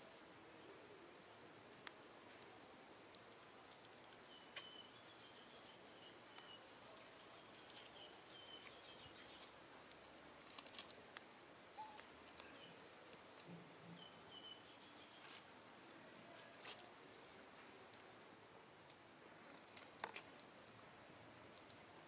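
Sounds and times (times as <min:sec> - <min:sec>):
soft ticks and clicks: 0:01.6 - 0:04.8, 0:06.3 - 0:13.8, 0:15.3 - 0:18.2, 0:18.8 - 0:22.0
faint high chirping: 0:04.2 - 0:09.6, 0:11.7 - 0:15.4.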